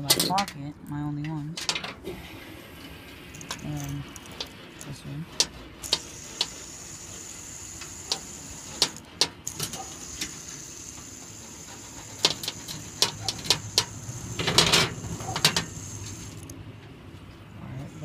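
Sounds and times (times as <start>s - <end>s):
fidget spinner clicks: 5.4s - 11.0s, 12.1s - 16.6s.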